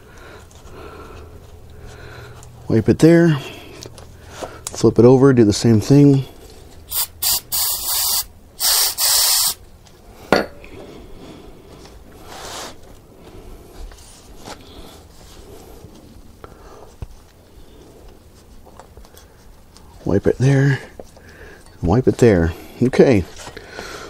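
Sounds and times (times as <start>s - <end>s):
aerosol spray hissing: 6.9s - 9.6s.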